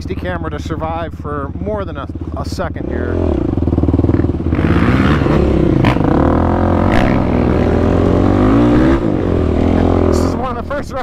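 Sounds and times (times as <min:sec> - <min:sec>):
quad engine revving: 0:02.8 - 0:11.0.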